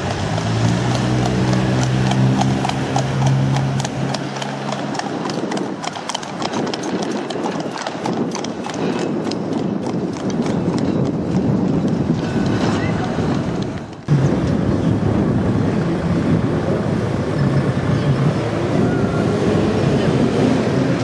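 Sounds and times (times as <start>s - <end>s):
tram humming: 0.0s - 5.8s, 13.7s - 21.0s
sharp clip-clop knocks: 0.0s - 14.6s.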